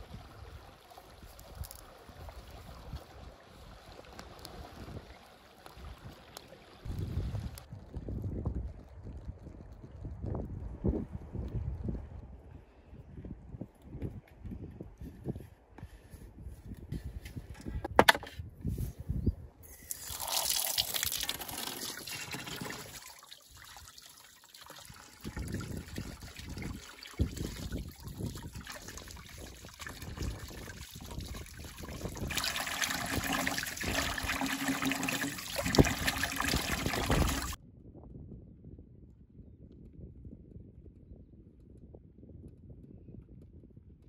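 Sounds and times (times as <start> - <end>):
water trickling and splashing: 0.0 - 7.8, 19.6 - 37.6.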